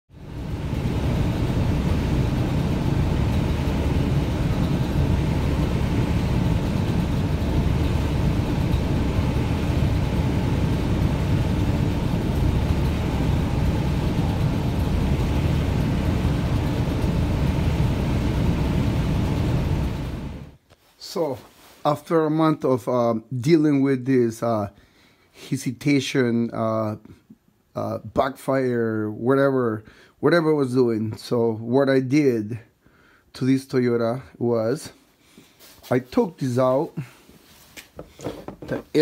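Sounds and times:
pickup engine running: 0:00.2 - 0:20.6.

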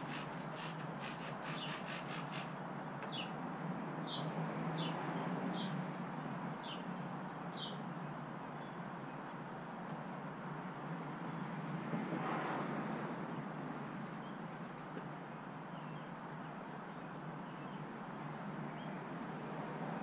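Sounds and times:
spray bottle squirting: 0:00.0 - 0:02.6
towel squeaking on paint: 0:00.0 - 0:02.6.

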